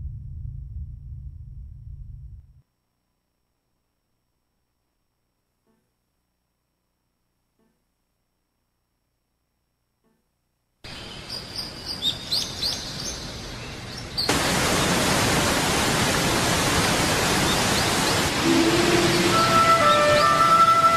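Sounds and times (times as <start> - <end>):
birds chirping: 10.9 - 20.9
waterfall rushing: 14.3 - 20.9
held musical tone: 18.4 - 20.9.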